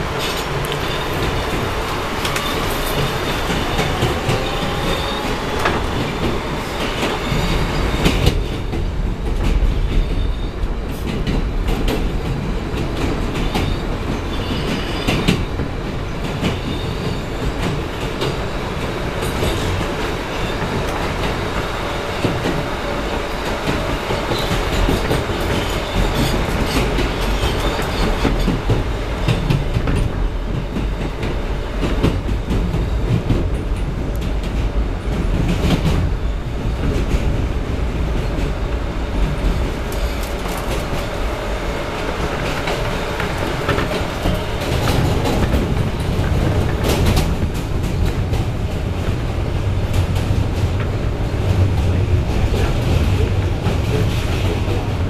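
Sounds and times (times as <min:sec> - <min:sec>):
wheels rumbling on rail: 0:00.0 - 0:55.0
clicks from rail joints: 0:00.1 - 0:07.2.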